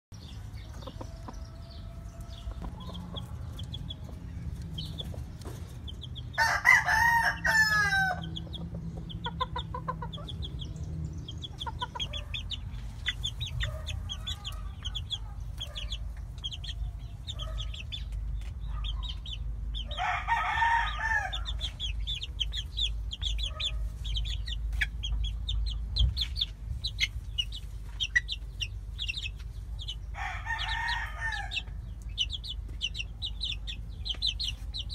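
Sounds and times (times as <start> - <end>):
chicks chirping: 0.2 - 34.9
rooster crowing: 6.4 - 8.3, 19.9 - 21.6, 30.2 - 31.7.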